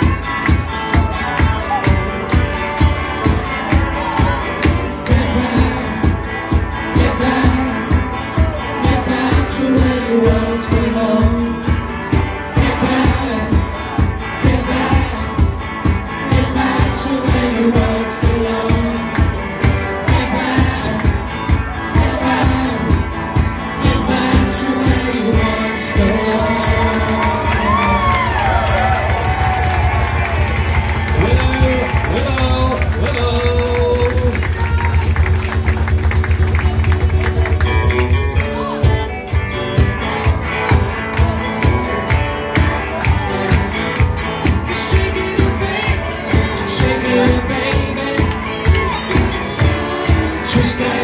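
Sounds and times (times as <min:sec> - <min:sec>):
live band playing: 0:00.0 - 0:51.0
steady drum beat: 0:00.0 - 0:51.0
person singing: 0:03.1 - 0:28.7, 0:42.6 - 0:51.0.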